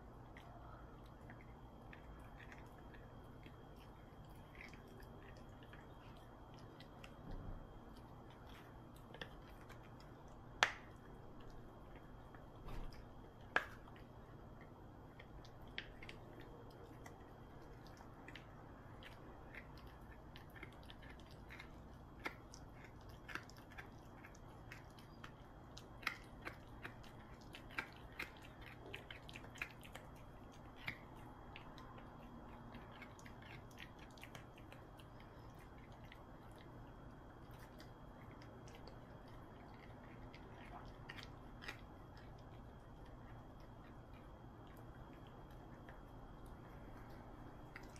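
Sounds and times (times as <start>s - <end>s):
dog teeth clicking on a hard chew: 0.3s - 47.9s.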